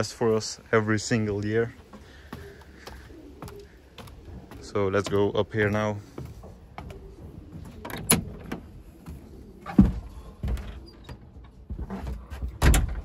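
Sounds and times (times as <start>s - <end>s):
footsteps on steel grate: 1.2s - 7.8s
wooden door unlatched and opened: 7.8s - 8.7s, 12.4s - 13.0s.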